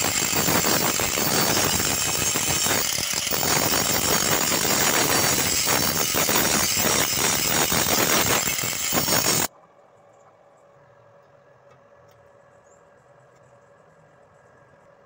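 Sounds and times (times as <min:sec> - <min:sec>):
angle grinder grinding metal: 0:00.0 - 0:09.5.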